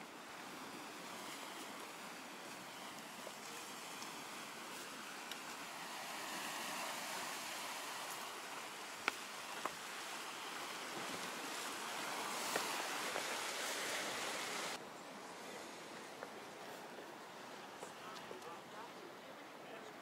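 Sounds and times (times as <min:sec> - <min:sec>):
surf washing against rocks: 0:00.0 - 0:14.8.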